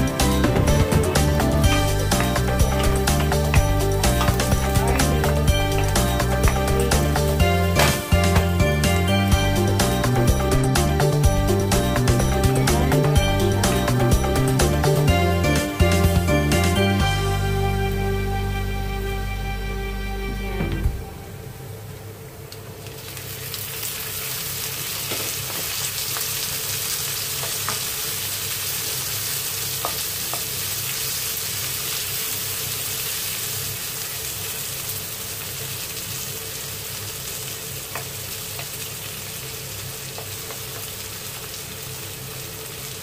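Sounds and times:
shrimp sizzling in a wok: 0.0 - 15.1, 22.8 - 43.0
wooden spatula tapping and scraping: 1.7 - 6.7.

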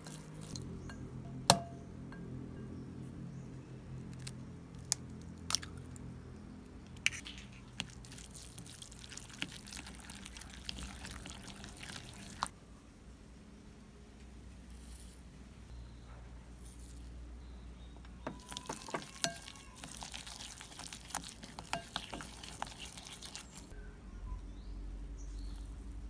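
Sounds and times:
wet squelching and scraping: 0.0 - 0.8, 6.9 - 12.5, 18.3 - 23.7.

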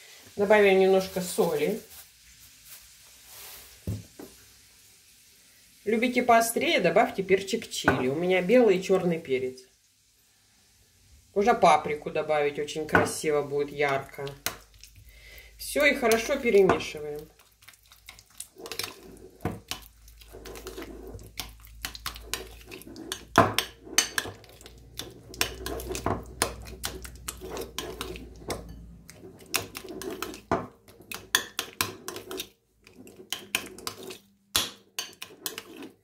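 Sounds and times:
fork scraping ceramic bowl: 17.8 - 36.0.

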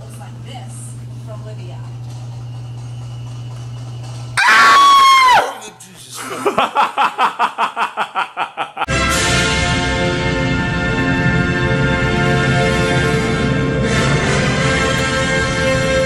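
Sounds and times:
loud piercing shriek: 4.4 - 5.7
rapid rhythmic laughter: 6.0 - 8.9
orchestral music: 8.9 - 16.0.

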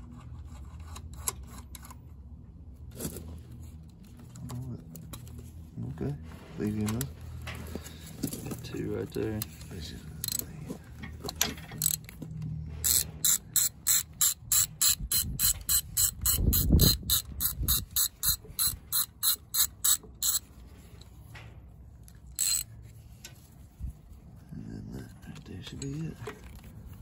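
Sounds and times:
ratchet wrench clicking: 10.2 - 10.4, 11.3 - 12.2, 12.8 - 20.5, 22.1 - 22.7.

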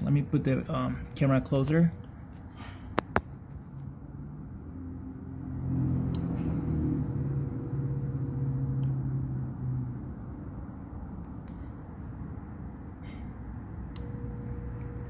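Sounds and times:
fridge compressor humming: 13.4 - 15.0.

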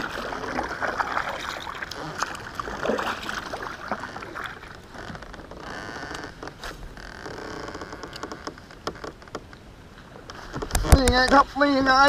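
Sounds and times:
water dripping off paddle: 0.0 - 4.9
kayak paddle splashing: 0.0 - 7.0.

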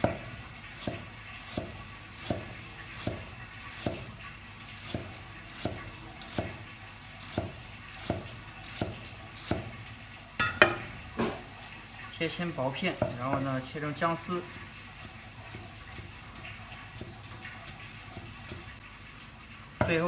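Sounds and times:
knife chopping on wooden block: 3.8 - 4.1.

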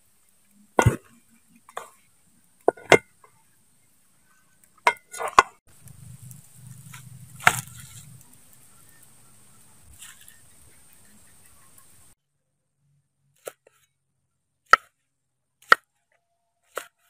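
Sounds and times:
wooden spatula knocking on metal pot: 2.7 - 3.1
low steady rumble: 5.6 - 12.2.

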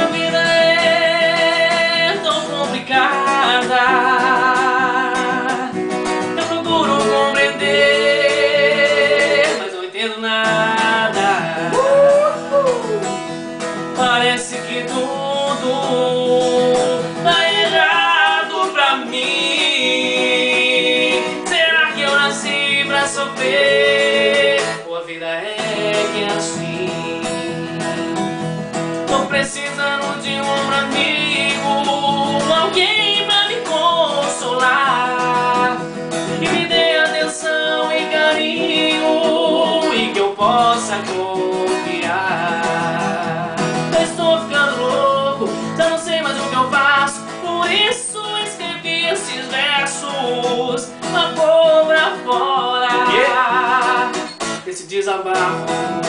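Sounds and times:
strummed acoustic guitar: 0.0 - 56.0
two men singing: 0.0 - 56.0.

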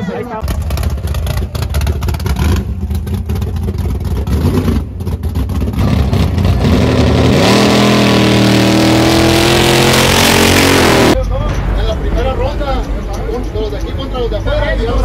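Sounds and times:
truck engine revving hard: 0.4 - 11.2.

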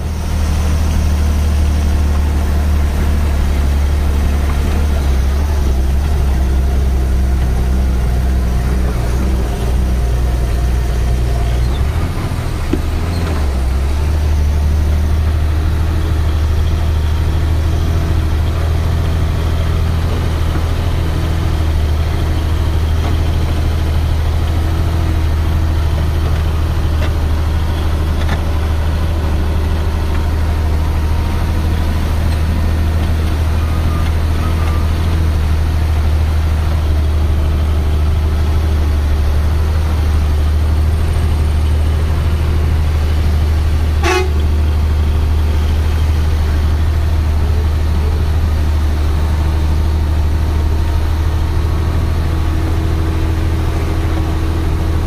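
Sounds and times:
truck diesel engine droning: 0.0 - 55.0.

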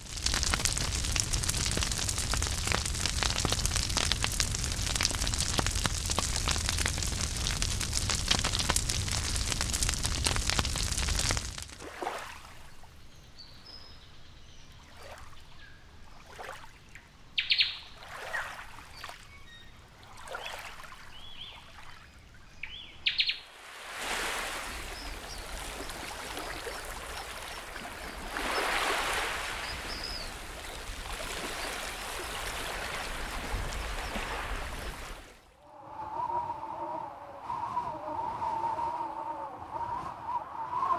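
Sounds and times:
water lapping: 0.0 - 12.9, 16.0 - 16.9, 18.0 - 19.3, 23.5 - 35.5.

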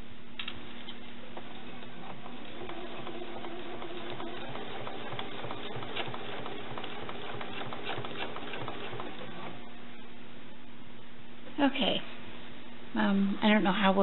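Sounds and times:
sewing machine running: 1.3 - 9.6.

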